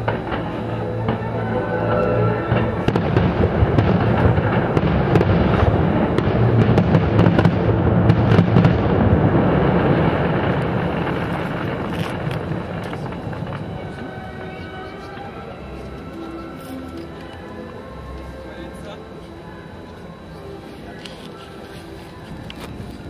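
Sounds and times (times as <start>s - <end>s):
fireworks bangs: 0.0s - 15.5s
fireworks crackling: 0.0s - 23.0s.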